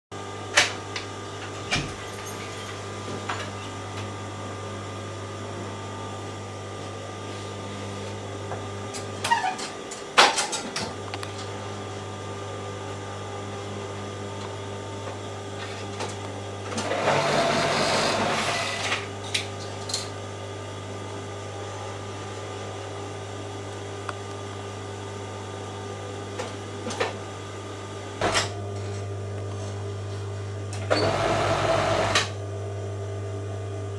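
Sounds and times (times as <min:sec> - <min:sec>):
overlock sewing machine humming: 0:16.6 - 0:19.1, 0:30.8 - 0:32.4.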